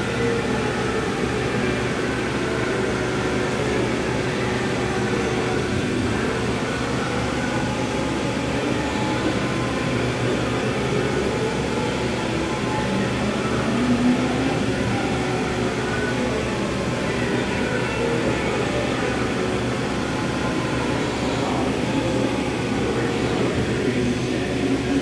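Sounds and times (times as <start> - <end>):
machining center humming: 0.0 - 25.0.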